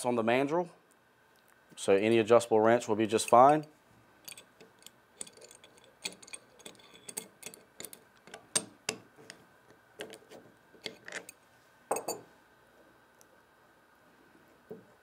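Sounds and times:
wrench clinking against metal: 3.2s - 8.8s, 10.8s - 12.2s.

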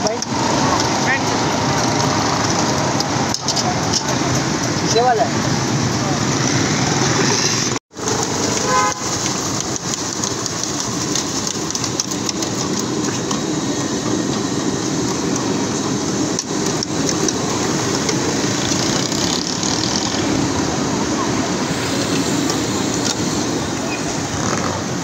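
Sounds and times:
fries sizzling in hot oil: 7.9s - 13.1s.

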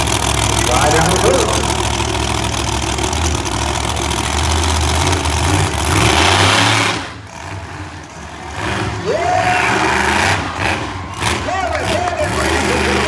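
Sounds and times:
monster truck engine revving: 0.0s - 13.0s.

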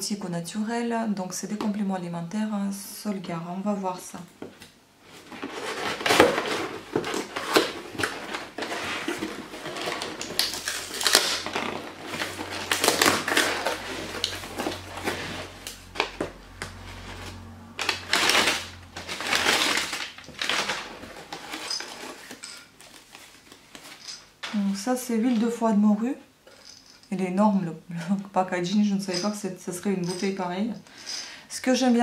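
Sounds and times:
packing paper rustling: 5.0s - 24.7s
cardboard box tearing: 5.2s - 16.1s, 16.8s - 23.0s.

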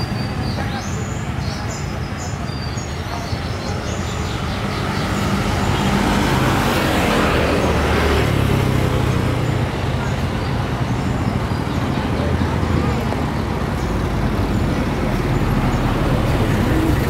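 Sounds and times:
motorbikes and scooters passing: 0.0s - 17.0s.

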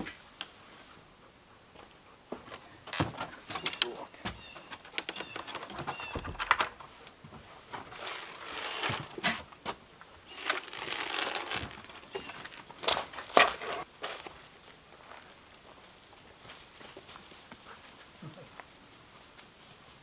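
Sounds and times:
footsteps on plank deck: 1.7s - 8.0s.

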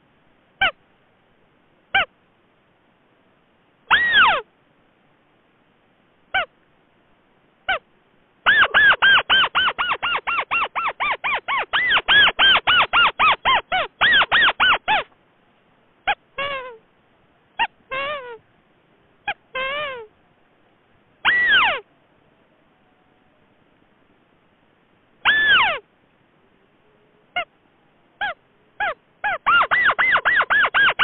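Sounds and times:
rail bird calls: 3.9s - 4.5s, 8.4s - 15.2s, 21.2s - 21.9s, 25.2s - 25.8s, 28.2s - 31.0s.

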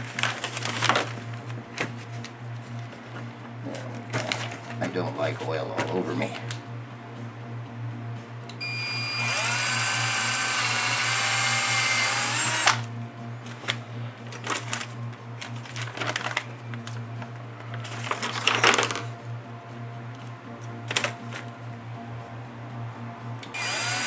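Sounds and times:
power drill boring into metal: 8.6s - 12.9s, 23.6s - 24.0s.

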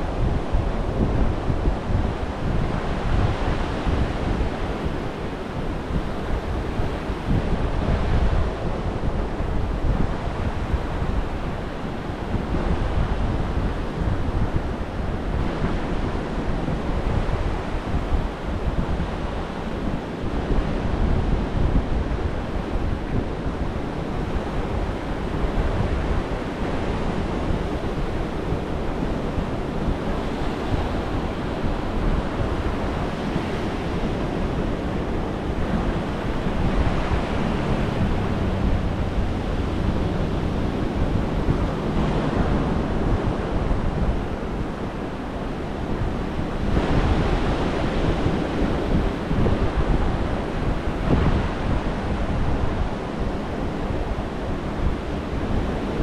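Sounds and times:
surf washing up a beach: 0.0s - 56.0s
wind buffeting microphone: 0.0s - 56.0s.

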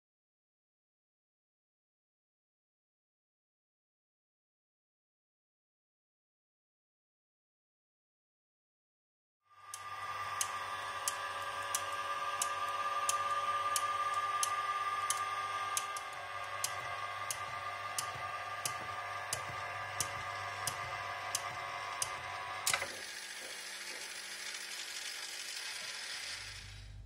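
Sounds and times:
motor hum: 9.5s - 27.0s
relay clicking: 9.6s - 27.0s
loud mechanism click: 9.7s - 23.0s.

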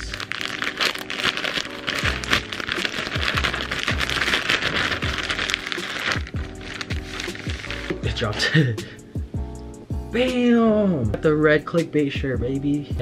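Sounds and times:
plastic bag crinkling: 0.0s - 8.0s
music with deep bass beat: 3.1s - 13.0s.

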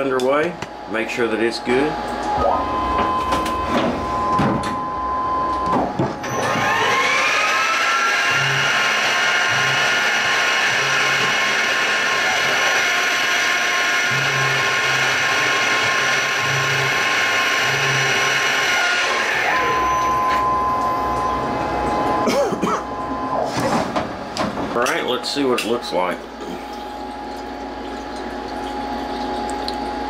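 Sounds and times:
mill spindle whine: 0.0s - 30.0s
steady tone: 19.5s - 23.7s.

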